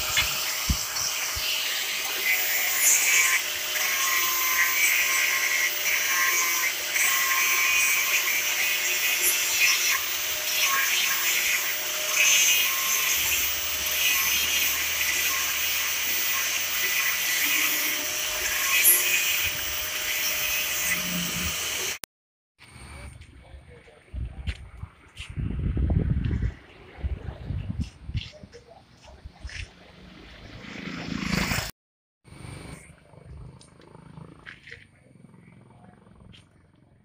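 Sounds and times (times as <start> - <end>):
angle grinder grinding metal: 0.0 - 22.0.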